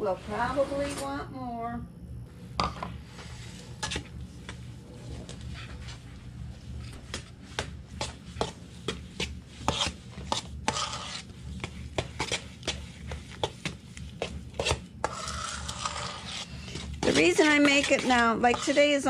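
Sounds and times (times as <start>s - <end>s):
wet scraping: 12.2s - 19.0s.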